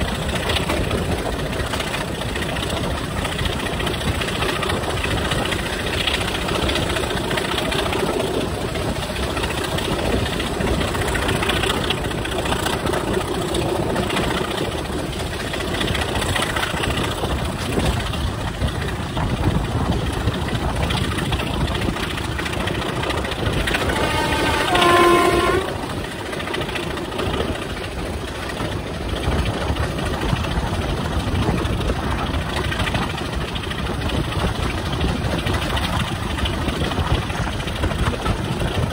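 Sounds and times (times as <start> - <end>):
diesel locomotive engine: 0.0 - 38.9
train wheels on rails: 0.0 - 38.9
locomotive horn: 23.5 - 26.4.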